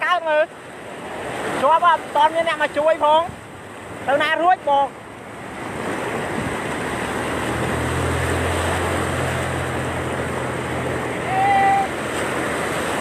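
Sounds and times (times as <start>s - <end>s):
floodwater rushing: 0.0s - 13.0s
truck engine humming: 4.9s - 13.0s.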